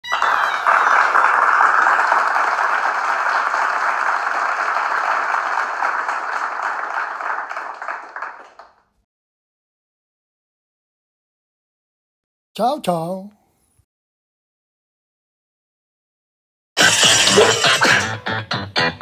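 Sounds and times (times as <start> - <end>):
crowd applause: 0.0 - 8.9, 16.8 - 18.2.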